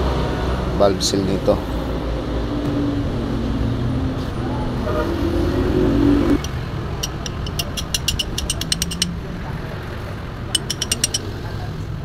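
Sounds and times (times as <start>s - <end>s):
socket ratchet clicking: 6.4s - 9.1s, 10.6s - 11.2s.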